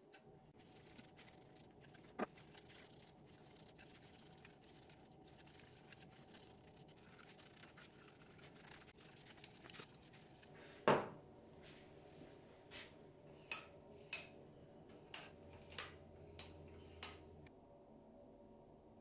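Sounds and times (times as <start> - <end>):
paper towel rubbing: 0.6 - 10.7.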